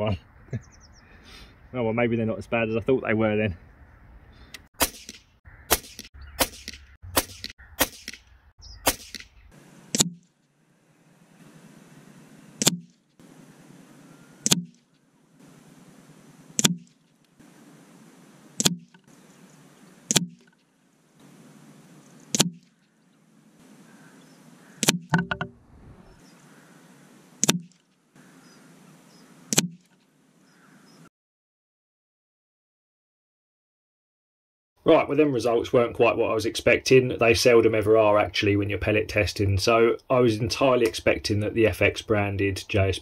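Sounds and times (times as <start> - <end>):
air rifle shots: 4.8 - 10.3, 12.6 - 13.0, 14.4 - 14.8, 16.6 - 16.9, 20.1 - 20.4, 24.8 - 25.2.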